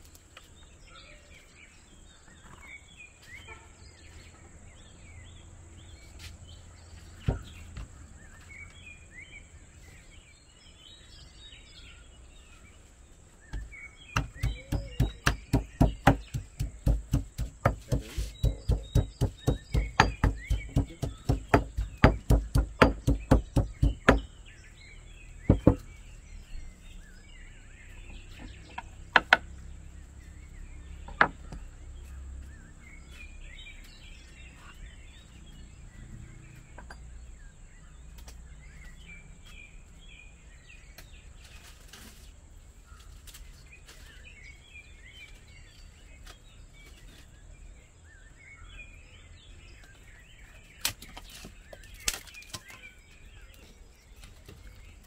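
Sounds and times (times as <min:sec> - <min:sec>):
faint bird chirps: 0:00.8 - 0:05.4
stone pestle pounding in mortar: 0:14.2 - 0:24.3, 0:25.5 - 0:25.8.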